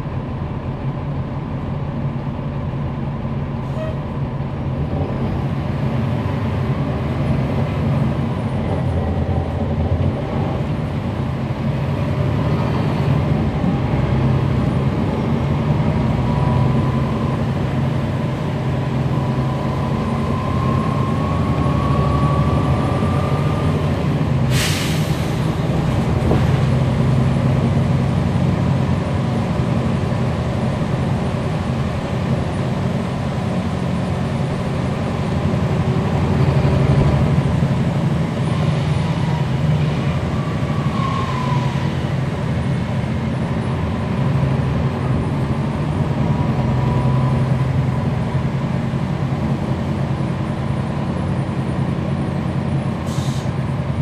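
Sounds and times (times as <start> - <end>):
bus engine drone: 0.0 - 54.0
hiss of released air: 24.5 - 25.5, 53.0 - 53.5.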